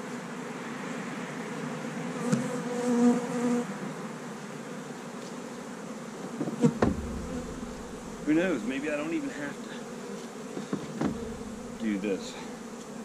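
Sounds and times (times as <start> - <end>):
bees buzzing: 0.0 - 13.0
sharp knocks: 6.4 - 8.9, 10.6 - 11.9.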